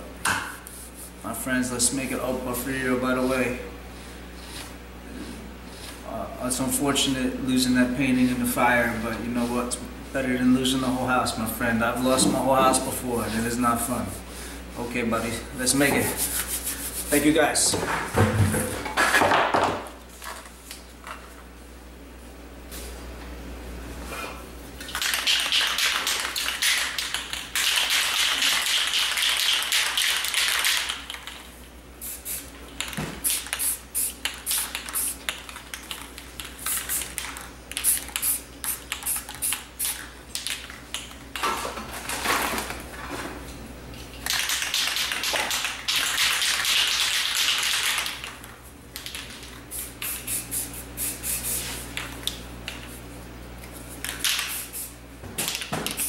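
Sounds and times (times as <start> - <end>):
spray cans rattling when shaken: 24.8 - 42.8, 44.2 - 52.1
spray paint can hissing: 32.0 - 32.5, 33.2 - 40.0, 49.7 - 51.8, 54.2 - 55.0.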